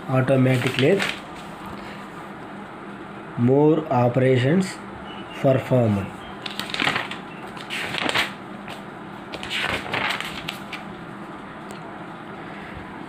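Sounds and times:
notebook pages rustling: 0:00.4 - 0:01.6, 0:06.4 - 0:10.9.

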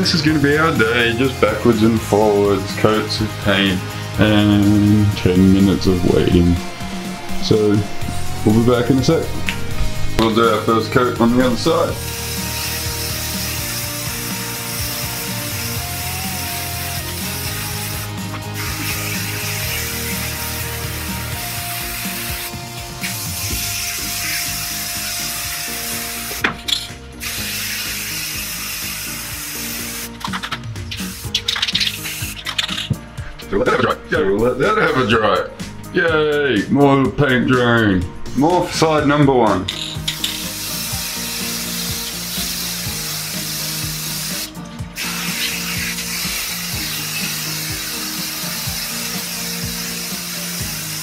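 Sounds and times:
background music: 0:00.0 - 0:51.0
spray paint can hissing: 0:11.2 - 0:33.0, 0:39.8 - 0:51.0.

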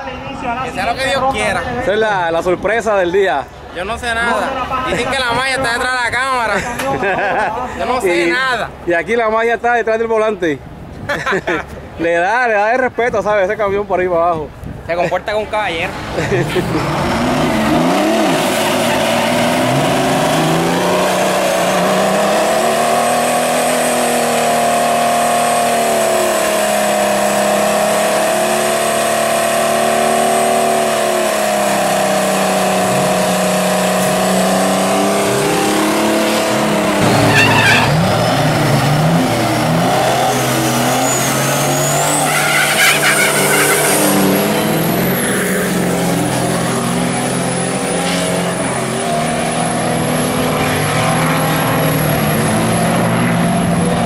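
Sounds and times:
truck engine revving: 0:15.9 - 0:54.0.

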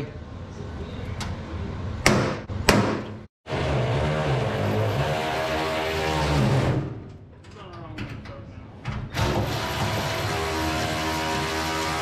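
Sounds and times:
sharp knocks: 0:02.0 - 0:03.2.

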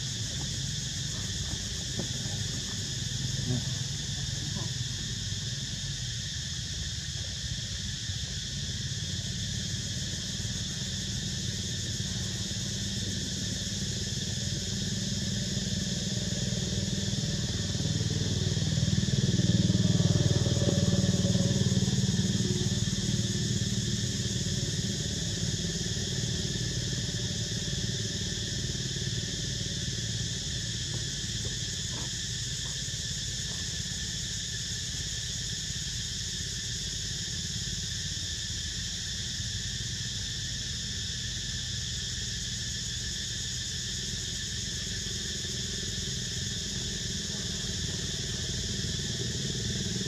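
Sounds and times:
vehicle engine running: 0:09.6 - 0:35.7, 0:44.8 - 0:50.0.

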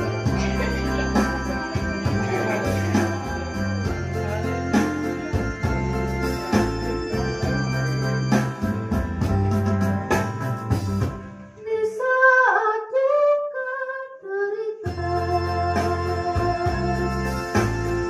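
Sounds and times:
woman singing: 0:00.0 - 0:05.6, 0:11.6 - 0:16.9
electronic keyboard organ chords: 0:00.0 - 0:11.6, 0:14.9 - 0:18.0.

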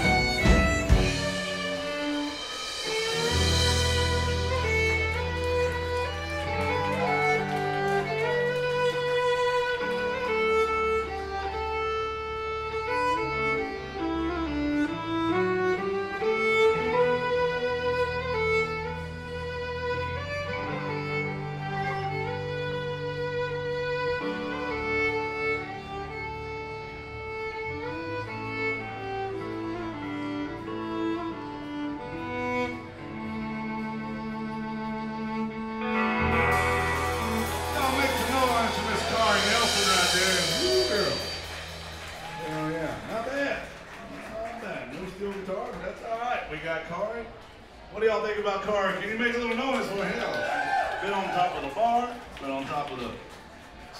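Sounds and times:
drums: 0:00.0 - 0:08.2, 0:35.9 - 0:44.2
guitars: 0:00.0 - 0:08.9, 0:35.7 - 0:42.3
live country band playing: 0:00.0 - 0:43.7
bass: 0:00.0 - 0:44.2
fiddle melody: 0:00.0 - 0:44.3.

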